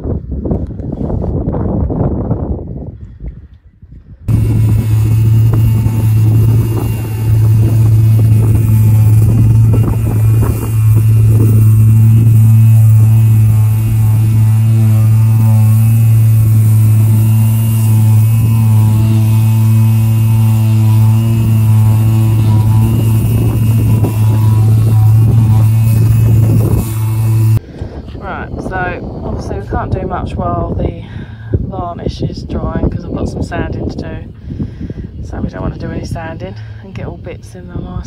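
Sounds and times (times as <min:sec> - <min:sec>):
electric power sander running: 0:04.3 - 0:30.1.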